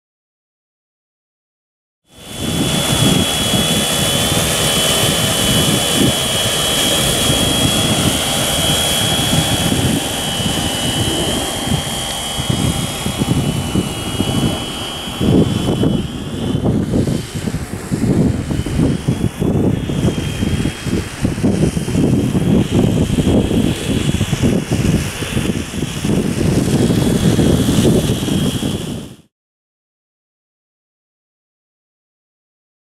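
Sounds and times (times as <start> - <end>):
drone rotors buzzing and whining: 2.1 - 29.3
wind buffeting microphone: 2.2 - 29.3.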